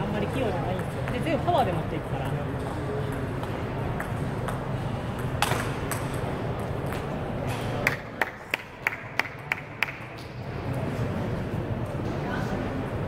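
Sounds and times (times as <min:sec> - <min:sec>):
sports hall hum: 0:00.0 - 0:13.0
ping pong ball bouncing pings: 0:00.3 - 0:01.4, 0:02.2 - 0:07.1.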